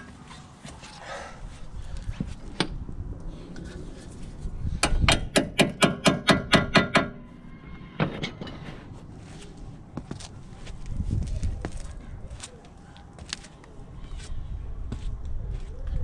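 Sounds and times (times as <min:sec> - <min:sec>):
hammer striking metal: 0:04.8 - 0:07.3.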